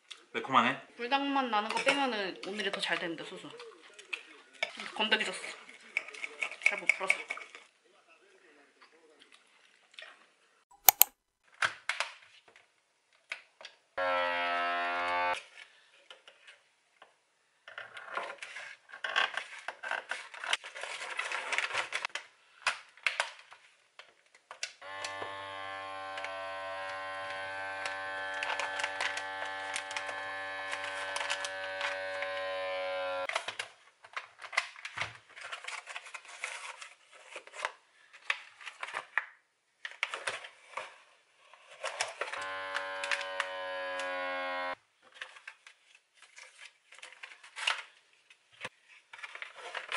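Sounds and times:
scissors snipping: 0:10.8 - 0:11.1
vacuum sealer pump humming: 0:24.8 - 0:33.2, 0:42.4 - 0:44.7.

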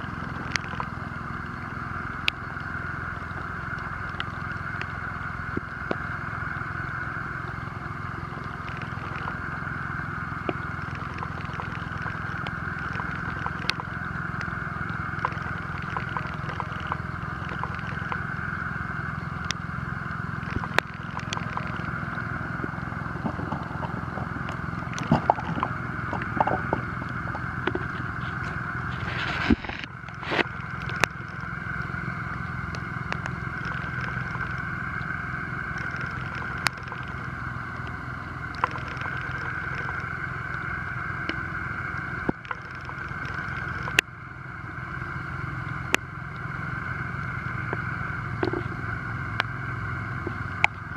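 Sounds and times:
motor droning: 0:00.0 - 0:50.9
fishing net clicks and scrapes: 0:28.9 - 0:31.0.

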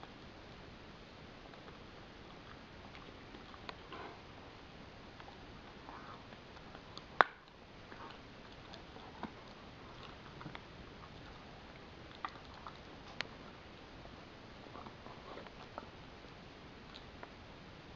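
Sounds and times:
dog chewing a bone: 0:01.5 - 0:14.0.

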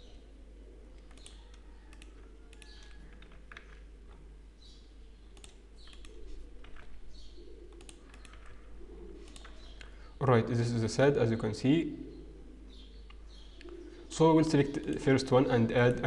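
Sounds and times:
mouse clicks: 0:01.0 - 0:03.8, 0:05.4 - 0:06.9, 0:07.7 - 0:08.6, 0:09.2 - 0:10.0
keyboard keystrokes: 0:07.7 - 0:08.6.

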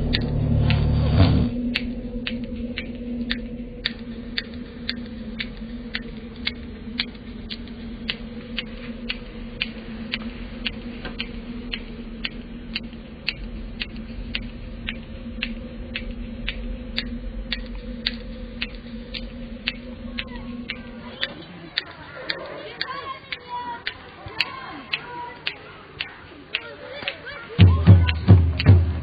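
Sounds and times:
low hum: 0:00.0 - 0:22.8
sharp regular ticking: 0:00.0 - 0:29.0.

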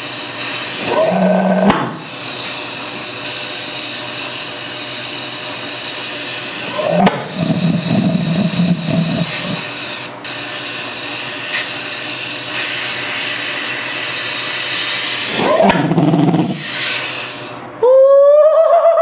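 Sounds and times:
compressed air hissing: 0:00.0 - 0:17.7.

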